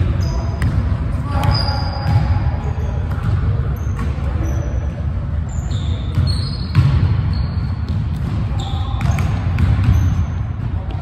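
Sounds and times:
players' voices: 0.0 - 11.0
sneaker squeaks: 0.0 - 11.0
basketball bouncing on wooden floor: 6.1 - 8.4, 9.0 - 10.7.

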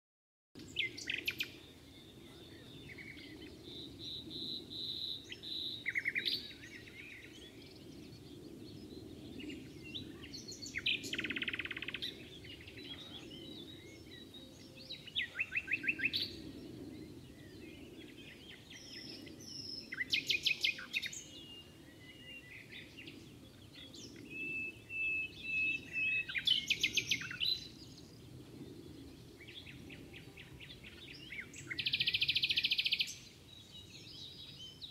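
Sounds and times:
nightingale singing: 0.6 - 7.9, 18.0 - 28.0, 29.4 - 34.9.

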